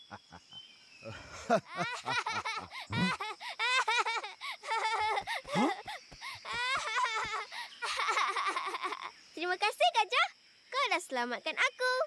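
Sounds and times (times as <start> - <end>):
high-pitched cartoon cackle: 1.5 - 5.9, 6.5 - 9.1.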